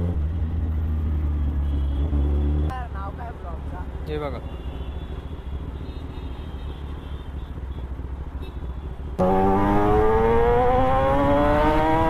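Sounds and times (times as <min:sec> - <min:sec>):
street traffic: 0:00.0 - 0:12.0
motorcycle idling: 0:02.8 - 0:09.4
motorcycle engine revving: 0:09.2 - 0:12.0.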